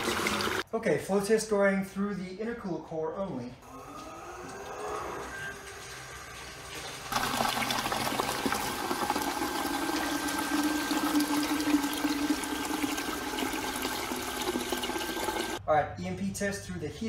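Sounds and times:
water gushing into plastic bucket: 0.0 - 0.6, 5.2 - 15.6.

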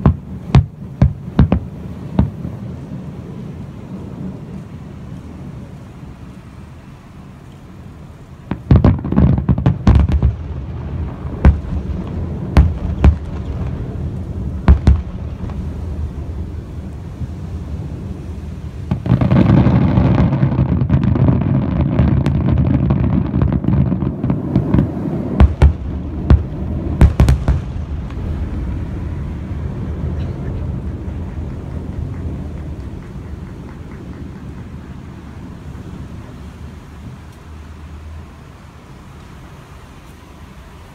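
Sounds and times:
firework booms: 0.0 - 3.4, 8.5 - 34.5
continuous firework rumbling: 0.0 - 40.9.

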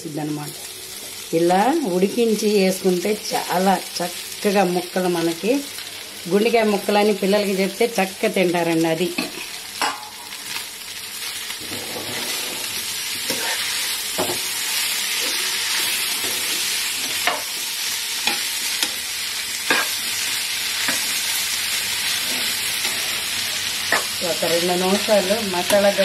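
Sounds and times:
food sizzling in oil: 0.0 - 26.0
metal spatula scraping a pan: 11.6 - 17.6, 22.1 - 24.2.

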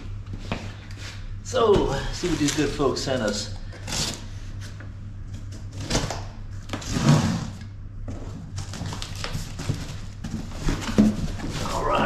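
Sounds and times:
cardboard rustling: 8.1 - 12.0.

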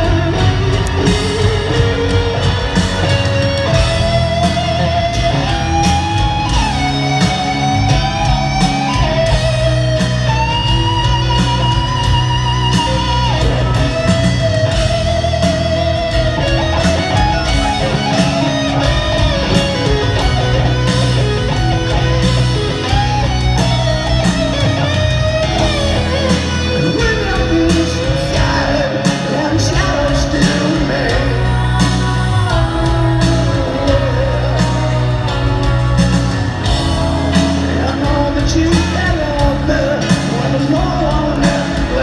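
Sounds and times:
electric guitar solo: 0.0 - 38.1
live rock band: 0.0 - 42.0.

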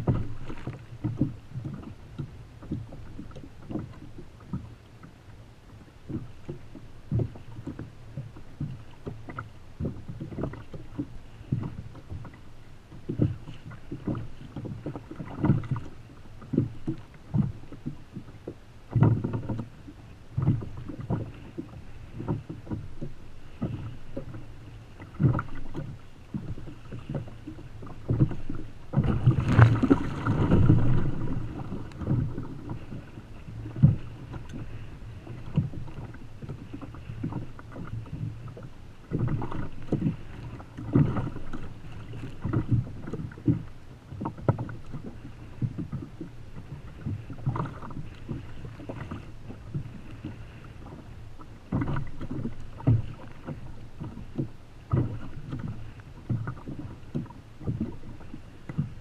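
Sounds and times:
water slapping against kayak hull: 0.0 - 59.0
wind on microphone: 20.4 - 59.0.

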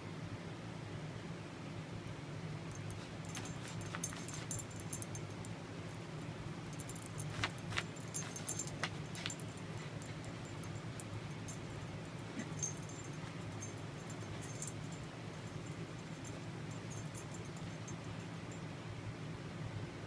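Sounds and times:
steady low hum: 1.0 - 20.0
dog collar tags jingling: 2.7 - 18.6
paws scratching fabric: 2.8 - 5.3, 6.8 - 11.8, 12.5 - 16.3.

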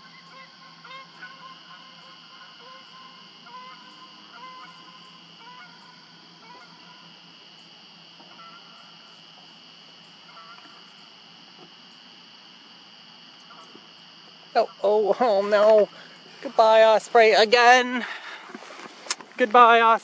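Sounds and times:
geese honking: 0.0 - 11.7.

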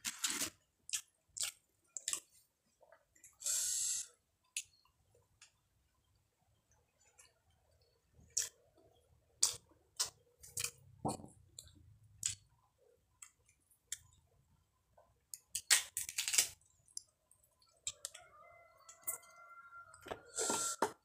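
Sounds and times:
fruit skin cracking: 15.3 - 16.6.

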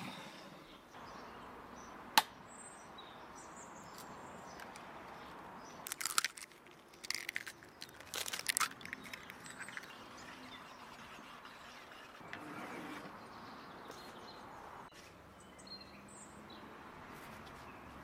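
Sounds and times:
birds chirping: 6.8 - 16.7.

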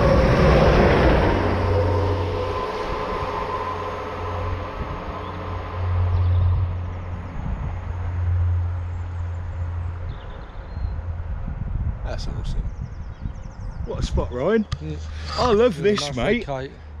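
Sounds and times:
passing train rail noise: 0.0 - 11.6.

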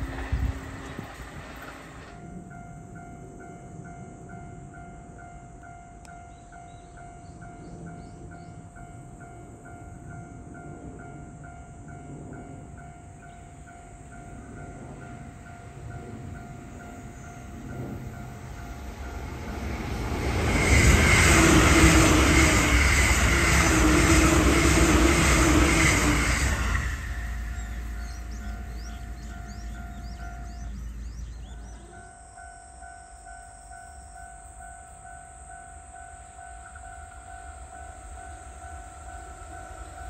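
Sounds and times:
steady warning tone: 0.0 - 40.0
train rumble: 0.0 - 40.0.

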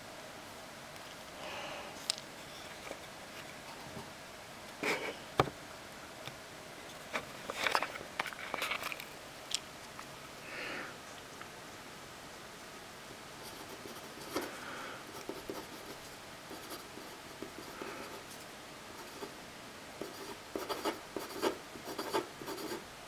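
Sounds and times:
pen scratching paper: 20.0 - 22.8.

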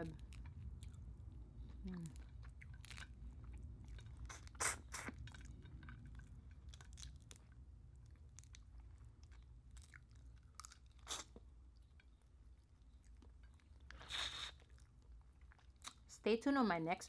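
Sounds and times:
lobster shell crackling and crunching: 0.0 - 12.2
close-up chewing: 0.0 - 16.1.

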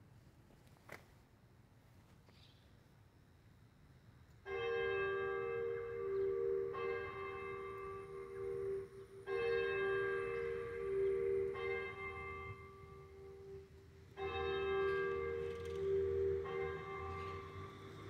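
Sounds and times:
church bells ringing: 4.4 - 18.0.

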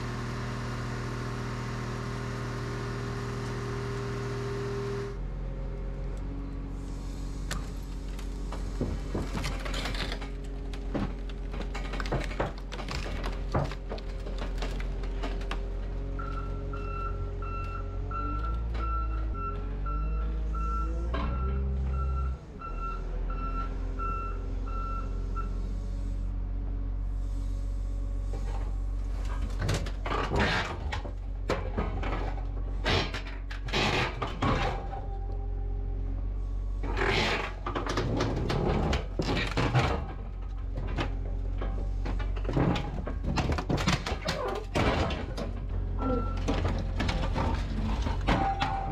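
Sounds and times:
reversing alarm beeping: 16.2 - 25.6.

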